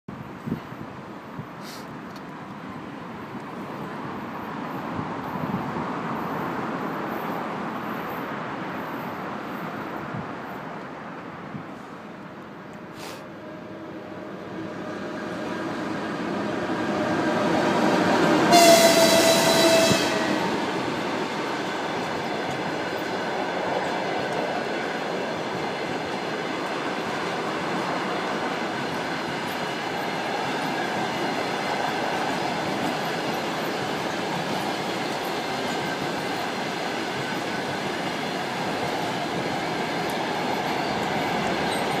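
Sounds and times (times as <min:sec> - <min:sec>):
train wheels rumbling on rails: 0:13.0 - 0:42.0
train horn blast: 0:18.3 - 0:20.6.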